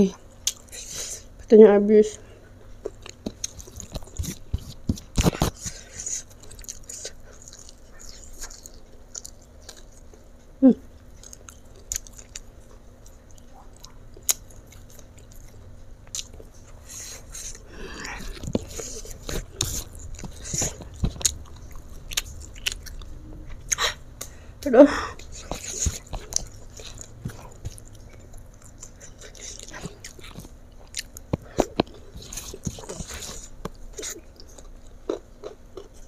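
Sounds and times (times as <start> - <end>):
person chewing and biting: 0.4 - 1.2, 2.6 - 10.2, 11.0 - 24.4, 25.1 - 36.0.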